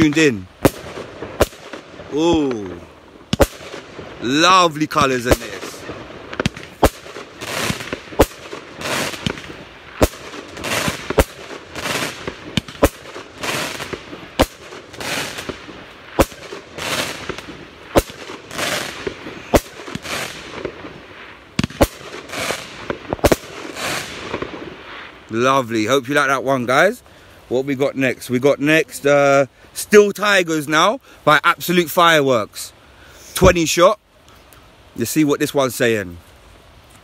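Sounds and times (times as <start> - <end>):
firework bangs: 0.0 - 25.2
firework stars hissing and crackling: 0.0 - 37.0.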